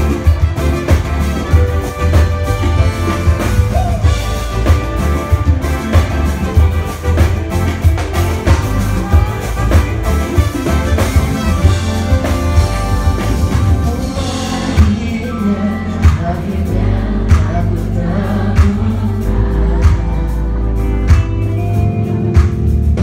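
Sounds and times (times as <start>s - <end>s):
pop song with singing: 13.7s - 21.2s.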